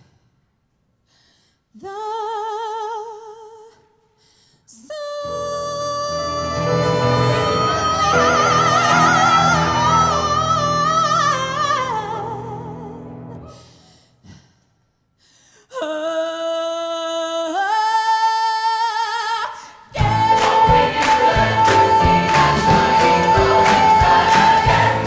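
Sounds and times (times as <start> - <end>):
musical accompaniment: 5.2 - 13.5, 20.0 - 25.0
choir singing: 5.3 - 12.6, 20.0 - 25.0
music with a beat: 20.0 - 25.0.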